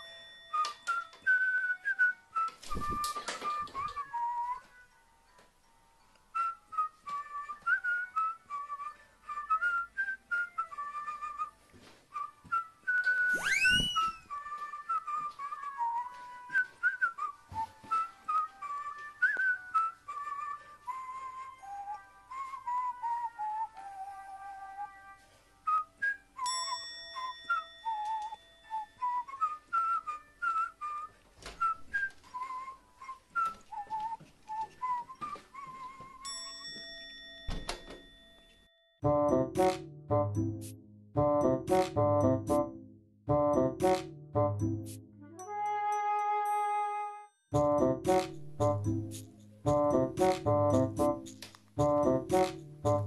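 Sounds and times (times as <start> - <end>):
whistled tune with light percussion: 0.0 - 5.0, 6.1 - 37.7, 43.3 - 53.0
rising whistle swoop: 13.0 - 14.4.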